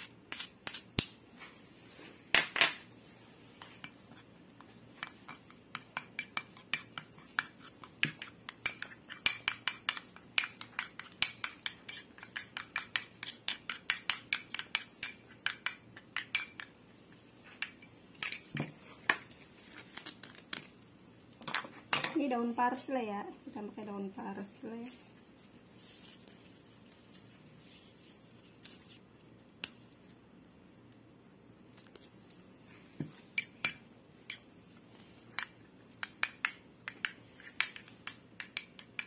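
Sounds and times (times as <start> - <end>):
metal spoon clinking on ceramic: 5.0 - 16.7, 17.6 - 18.8, 35.4 - 39.0.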